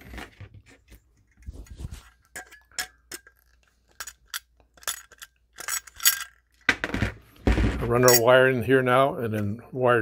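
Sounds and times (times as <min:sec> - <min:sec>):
metallic clicks and clinks: 0:02.2 - 0:06.7.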